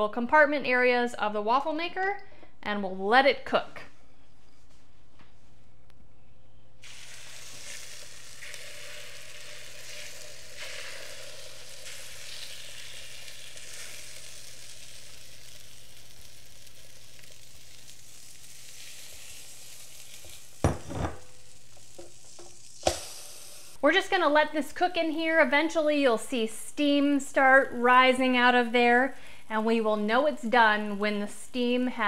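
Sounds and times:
batter sizzling in waffle maker: 0:06.8 - 0:23.8
glass bowl knocking on counter: 0:20.6 - 0:21.2.

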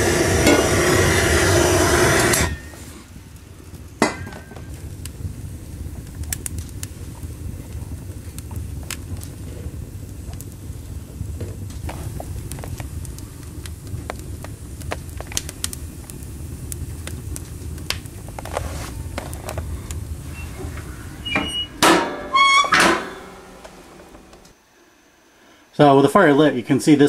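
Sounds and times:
wood fire crackling and popping: 0:00.0 - 0:24.6
metal stove door clanking shut: 0:20.6 - 0:23.6.

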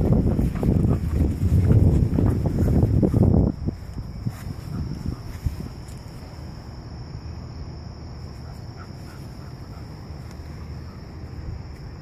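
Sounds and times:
wind rumble on microphone: 0:00.0 - 0:07.9
high-pitched insect drone: 0:00.0 - 0:12.0.

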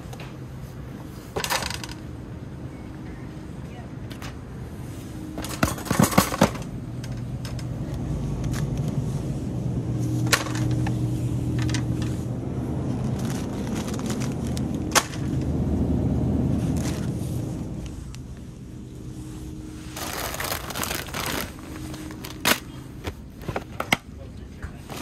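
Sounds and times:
low steady hum: 0:00.0 - 0:25.0
boxes clacking: 0:05.4 - 0:07.7, 0:20.0 - 0:24.1
shopping cart rattling: 0:05.4 - 0:07.7, 0:13.0 - 0:15.3, 0:20.0 - 0:23.9.

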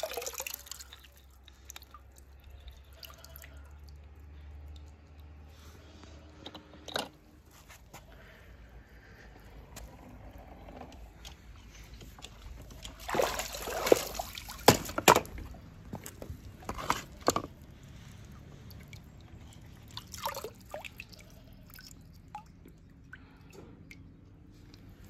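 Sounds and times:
wet handling sounds: 0:11.0 - 0:25.0
water sloshing off net: 0:12.2 - 0:15.6.

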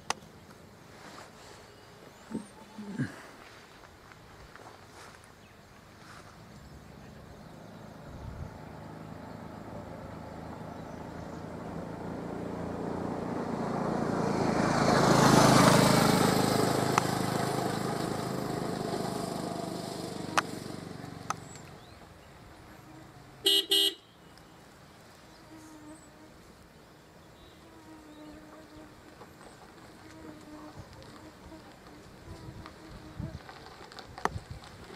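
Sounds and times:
vehicle driving past: 0:05.9 - 0:23.5
car horn toots: 0:23.4 - 0:24.2.

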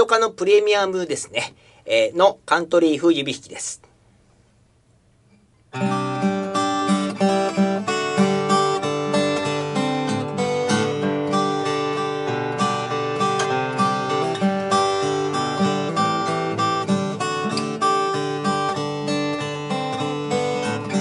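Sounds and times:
fingerpicked acoustic guitar: 0:05.3 - 0:21.0.

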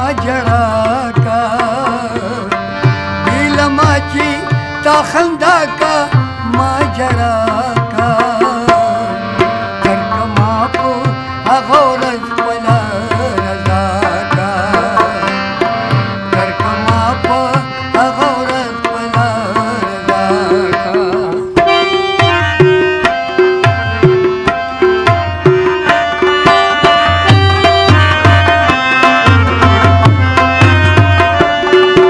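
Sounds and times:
harmonium: 0:00.0 - 0:32.0
tabla beat: 0:00.0 - 0:32.0
plucked rubab: 0:00.2 - 0:32.0
man singing wavering notes: 0:03.3 - 0:22.9.

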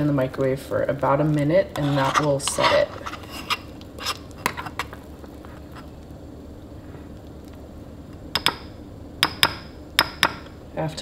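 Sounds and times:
spoon stirring thick mix: 0:01.6 - 0:06.0.

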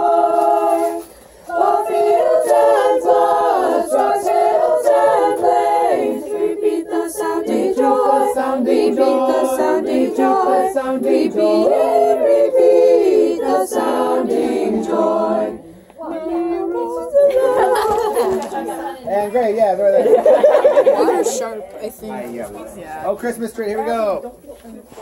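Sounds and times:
group singing a cappella: 0:00.0 - 0:19.2.

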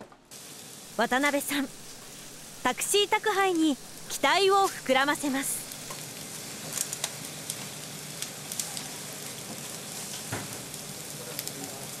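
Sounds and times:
food sizzling: 0:00.3 - 0:12.0
crackling pops: 0:03.2 - 0:11.8.

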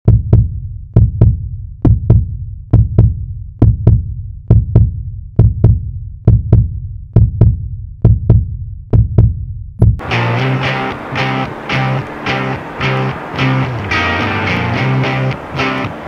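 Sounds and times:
heartbeat thumps: 0:00.0 - 0:10.0.

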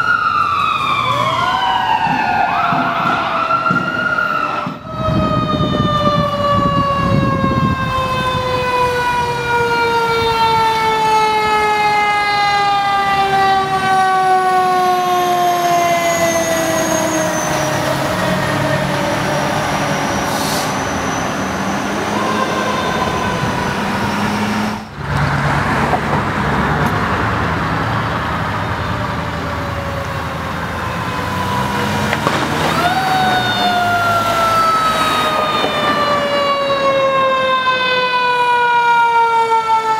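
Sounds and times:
mechanical siren wailing: 0:00.0 - 0:20.3, 0:20.9 - 0:24.9, 0:28.9 - 0:39.9
heavy truck engine: 0:00.0 - 0:38.6.

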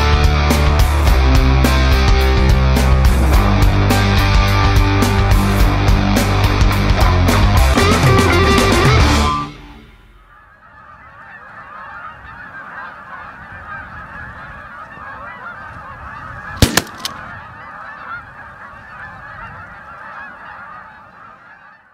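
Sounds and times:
flock of geese honking: 0:00.0 - 0:21.9
shotgun shots: 0:16.6 - 0:17.4.

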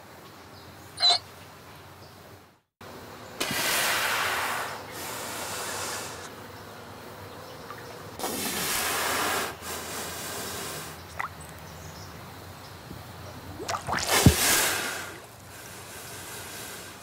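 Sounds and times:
manatee squeak: 0:01.0 - 0:01.2
underwater rushing hiss: 0:03.4 - 0:06.3, 0:08.2 - 0:11.3, 0:13.4 - 0:17.0.

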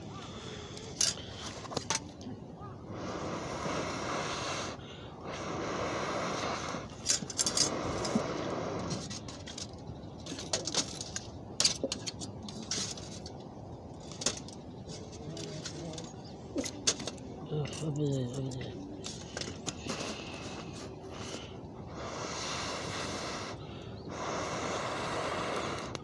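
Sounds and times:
fire crackling: 0:00.0 - 0:26.0
air blown through a pipe: 0:19.8 - 0:26.0.

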